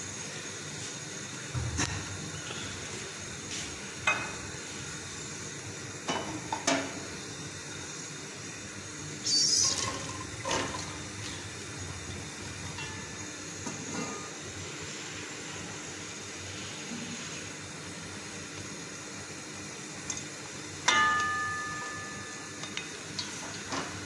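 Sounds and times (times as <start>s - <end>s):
bowl and utensils knocking pot: 20.9s - 22.3s.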